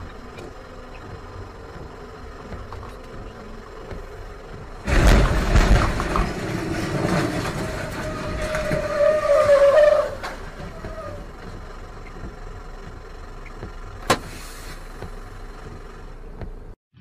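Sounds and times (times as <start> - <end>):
truck engine and tyre noise rushing: 0.0 - 17.0.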